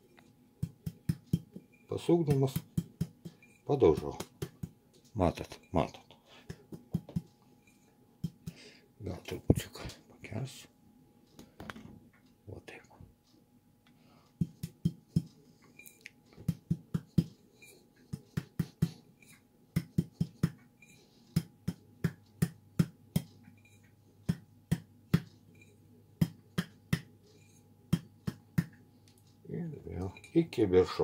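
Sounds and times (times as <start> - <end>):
palm tapping a glass jar: 0.6 - 4.8, 6.5 - 7.3, 14.4 - 15.3, 21.4 - 28.8.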